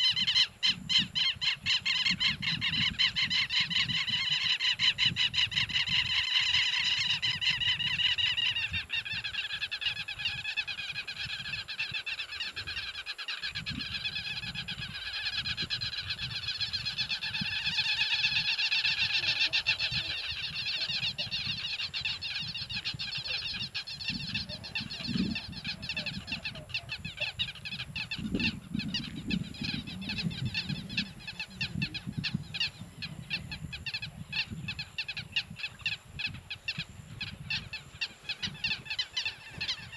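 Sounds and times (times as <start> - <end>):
wind rumble on microphone: 0.0 - 39.9
wild animals calling: 13.9 - 34.1.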